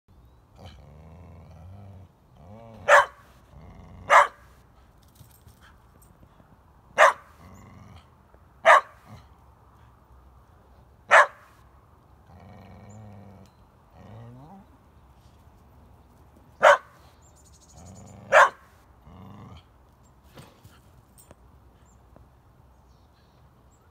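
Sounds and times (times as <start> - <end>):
dog growling: 0.6 - 2.9, 3.5 - 4.2, 7.4 - 8.1, 12.2 - 14.8, 19.0 - 19.7
dog barking: 2.8 - 3.2, 4.1 - 4.5, 7.0 - 7.4, 8.6 - 9.1, 11.1 - 11.5, 16.6 - 17.0, 18.3 - 18.7.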